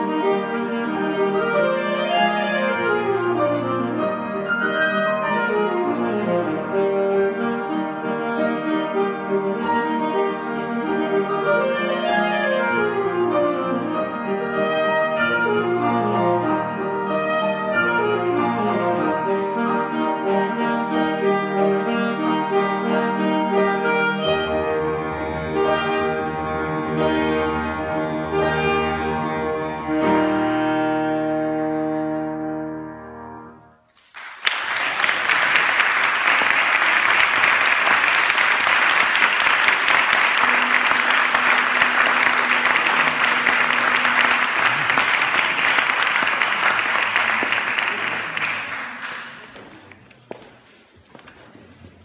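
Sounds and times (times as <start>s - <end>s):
saxophones and piano: 0.0s - 33.9s, 35.3s - 49.5s
audience applause: 34.0s - 50.3s.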